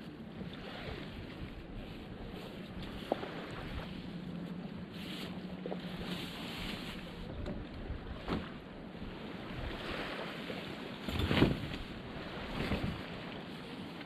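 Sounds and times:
wind on microphone: 0.0 - 4.1, 5.9 - 10.3, 11.0 - 13.4
small waves washing on beach: 0.0 - 14.0
tent frame thumps: 11.1 - 11.8.

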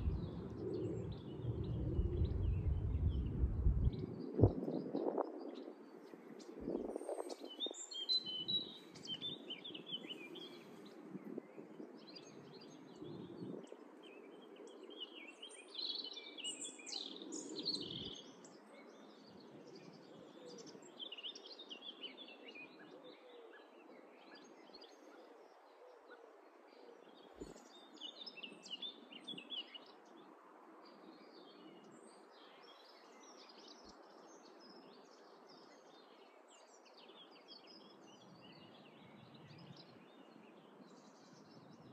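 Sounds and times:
low rumbles: 0.0 - 4.6
songbirds chirping: 0.0 - 41.9.

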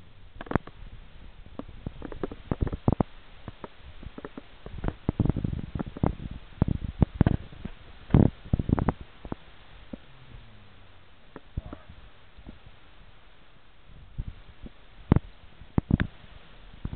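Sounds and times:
close clicks knocks and thumps: 0.4 - 0.8, 1.5 - 10.0, 15.1 - 16.1.

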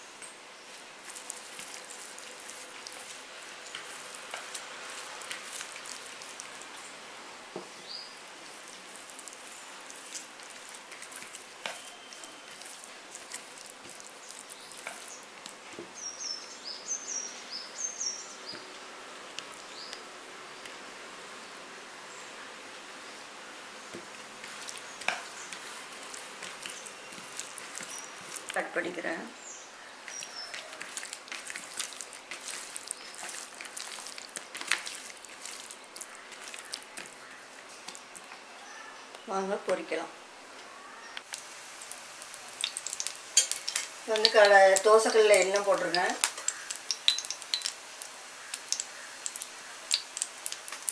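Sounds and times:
fingers squishing wet paste: 1.0 - 6.8, 8.4 - 15.6, 23.9 - 28.6, 30.0 - 38.3, 42.4 - 50.9
small bird chirping: 24.7 - 28.5, 29.4 - 31.0.

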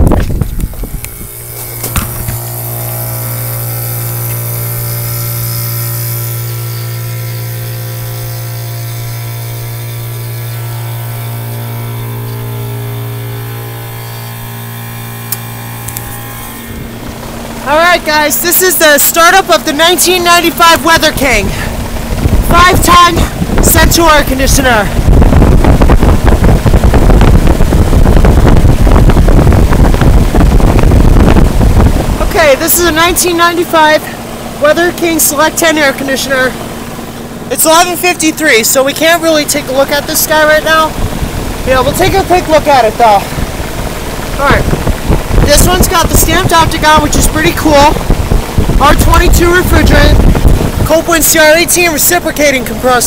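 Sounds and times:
air conditioner compressor hum: 0.0 - 53.0
fan air rushing: 0.0 - 53.0.

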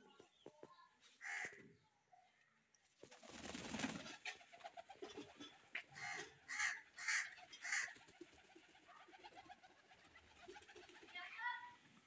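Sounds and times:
pigeon wings flapping: 3.0 - 5.4, 7.7 - 11.3.

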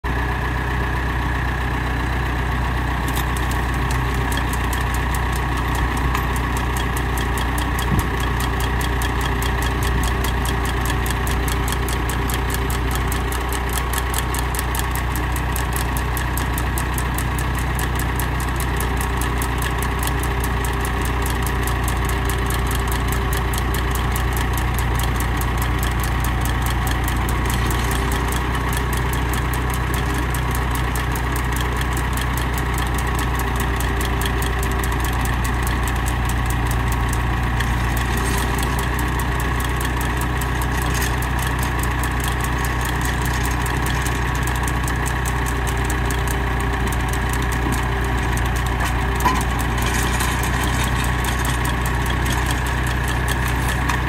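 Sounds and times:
tractor engine running: 0.0 - 54.0
fast even clicking: 23.7 - 54.0.

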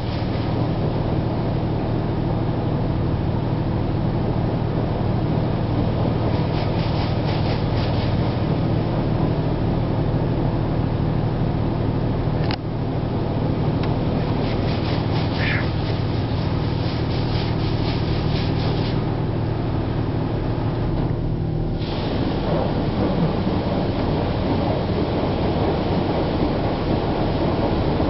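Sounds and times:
steady low hum: 0.0 - 28.0
car wash spray hitting truck: 21.8 - 28.0.

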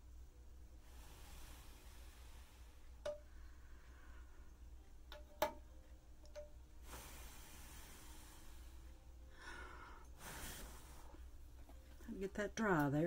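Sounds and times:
soft hiss: 0.0 - 13.0
breathing: 0.8 - 4.6, 6.8 - 11.2.

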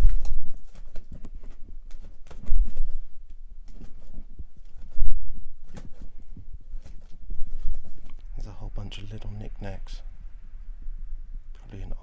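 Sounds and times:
record sleeves clicking together: 0.0 - 6.2.

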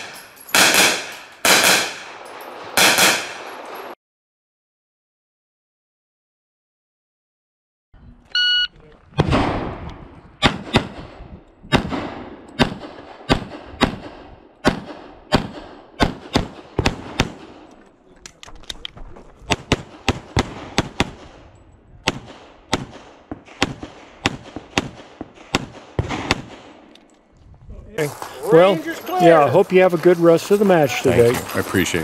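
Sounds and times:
pistol shots: 0.0 - 3.8, 10.4 - 17.7, 19.5 - 21.4, 22.0 - 26.9.

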